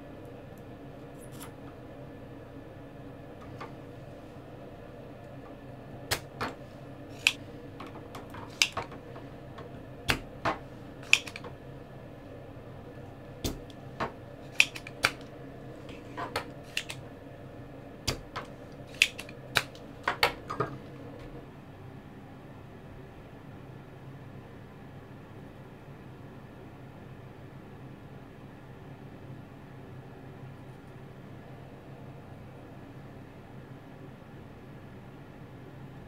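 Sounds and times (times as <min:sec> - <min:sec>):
desoldering pump clicks: 0:07.2 - 0:07.4, 0:08.1 - 0:09.0, 0:11.0 - 0:11.5, 0:14.5 - 0:15.3, 0:18.1 - 0:20.3.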